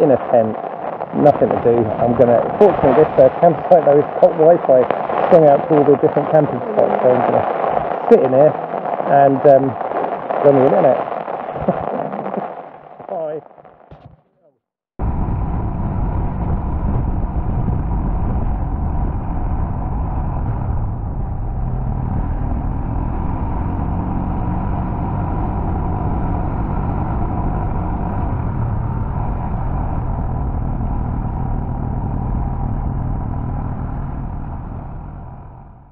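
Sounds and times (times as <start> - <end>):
wind rush over microphone: 0.0 - 14.2, 15.0 - 35.9
motorcycle engine cruising: 15.1 - 35.8.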